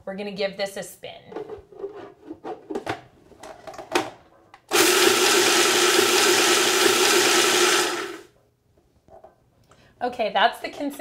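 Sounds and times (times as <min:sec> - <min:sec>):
food processor grinding nuts: 0:04.7 - 0:08.3.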